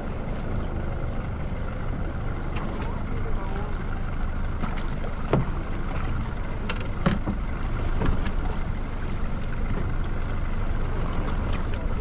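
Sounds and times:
boat engine rumble and water: 0:00.0 - 0:12.0.

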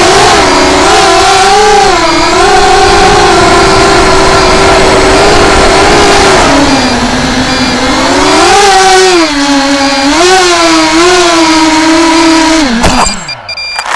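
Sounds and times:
drone motors whining: 0:00.0 - 0:13.9.

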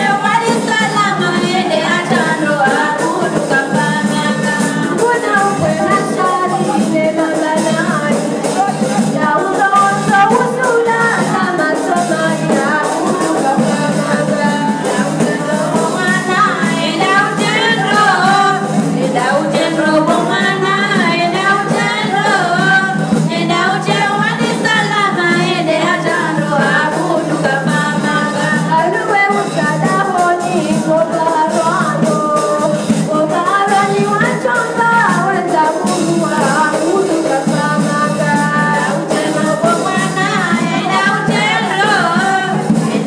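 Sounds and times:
backing music: 0:00.0 - 0:43.0
women singing: 0:00.0 - 0:43.0.

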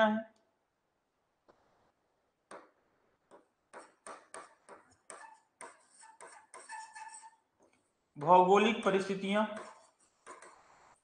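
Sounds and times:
marker pen writing on whiteboard: 0:02.5 - 0:07.4, 0:09.4 - 0:11.0.

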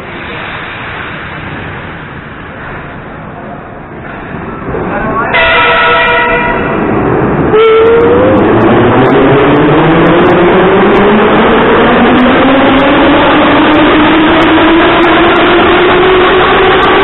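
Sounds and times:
heavy train running noise: 0:00.0 - 0:17.0
train motor whine: 0:05.3 - 0:17.0.

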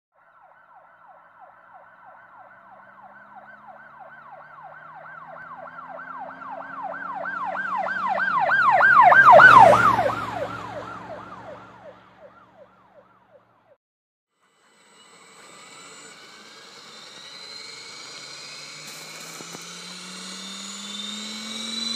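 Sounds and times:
emergency siren: 0:00.1 - 0:13.8, 0:14.5 - 0:21.9
vehicle rumble: 0:02.3 - 0:13.7.

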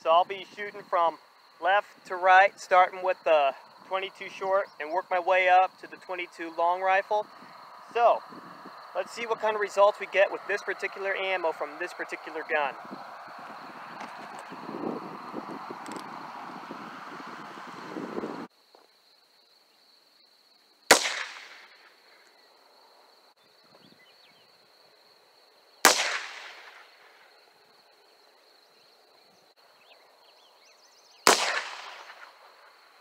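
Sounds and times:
revolver gunshots with echo: 0:20.9 - 0:21.9, 0:25.8 - 0:27.0, 0:31.2 - 0:32.3.

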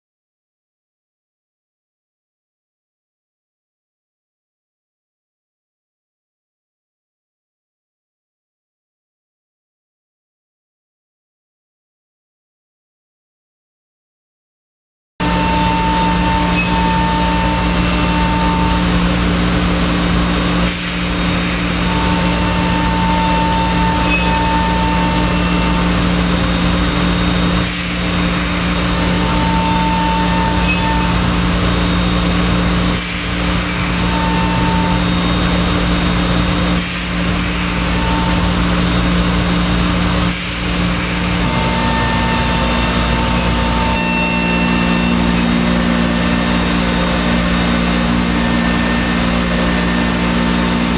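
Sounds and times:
higher machine tone: 0:15.2 - 0:36.6, 0:37.6 - 0:39.7, 0:40.9 - 0:50.9
cnc router machine hum: 0:15.2 - 0:50.9.

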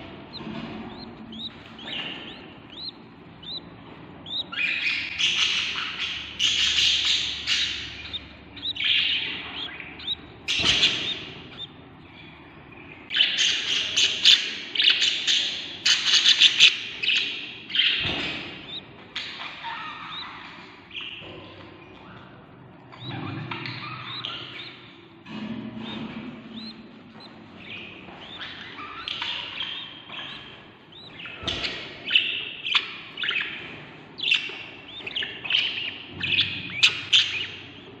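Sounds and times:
nestlings begging chirps: 0:00.0 - 0:38.0.

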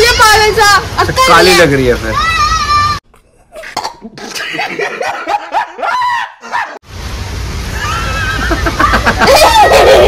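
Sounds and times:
high voices squealing and laughing: 0:05.6 - 0:06.8, 0:07.8 - 0:10.0.

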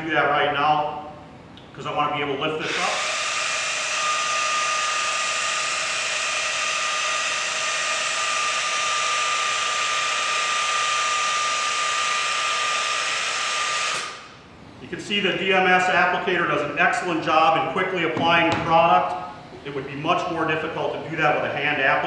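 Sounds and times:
pneumatic applicator hissing whine: 0:02.6 - 0:14.4.

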